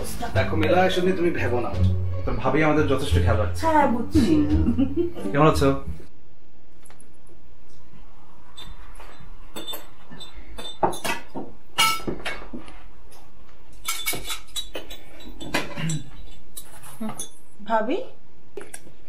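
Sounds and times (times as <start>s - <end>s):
plates cutlery and glassware clinking: 8.5s - 17.4s.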